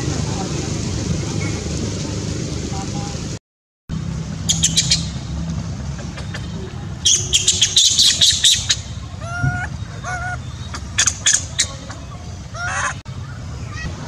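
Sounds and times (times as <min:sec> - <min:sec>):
animal squawking calls: 0:06.0 - 0:13.9
high animal squeaks: 0:07.0 - 0:13.0.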